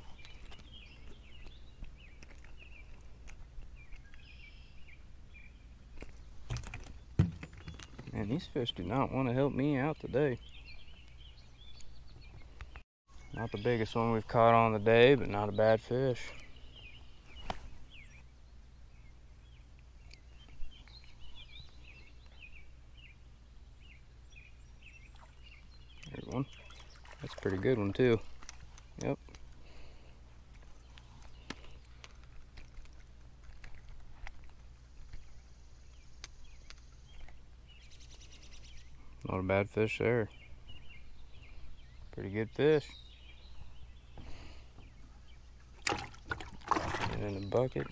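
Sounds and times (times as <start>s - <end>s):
faint birdsong: 0.0s - 47.9s
light clicks from handling fish: 0.1s - 4.3s, 26.0s - 29.8s, 30.5s - 37.4s.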